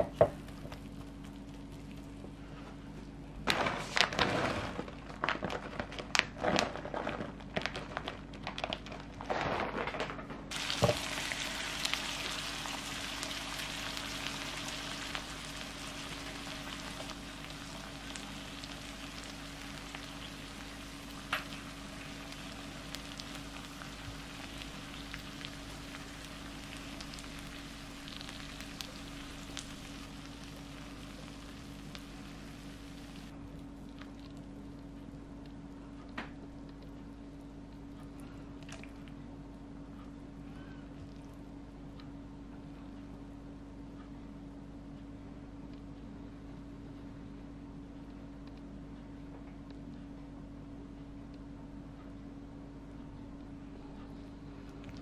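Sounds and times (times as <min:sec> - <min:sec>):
rice sizzling in a pan: 0:10.5 - 0:33.3.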